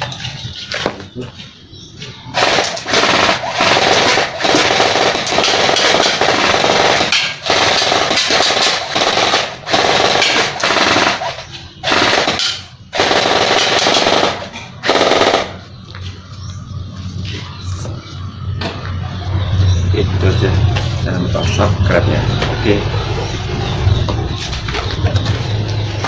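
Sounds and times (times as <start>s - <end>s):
airsoft rifle firing full auto: 2.4s - 15.6s.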